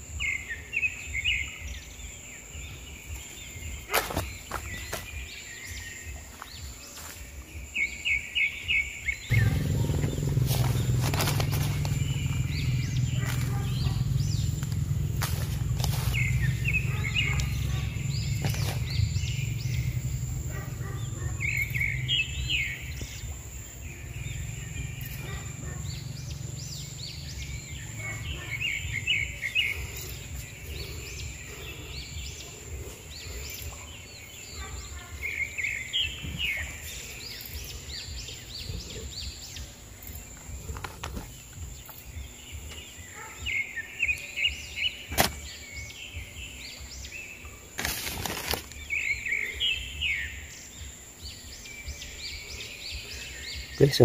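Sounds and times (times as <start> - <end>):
birds chirping: 0.0 - 54.0
low background rumble: 9.3 - 34.5.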